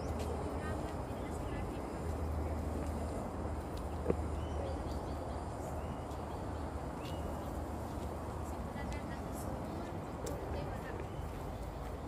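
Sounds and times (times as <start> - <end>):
bird chirping: 4.3 - 8.1.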